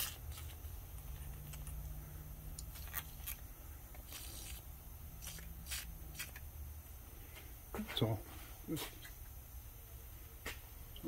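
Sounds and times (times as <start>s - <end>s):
low steady hum: 0.0s - 11.0s
aerosol can spraying: 4.1s - 4.6s, 5.2s - 6.4s.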